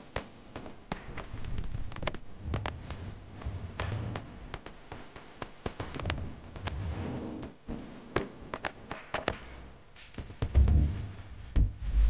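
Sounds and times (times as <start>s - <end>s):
low rumble: 10.6s - 12.0s.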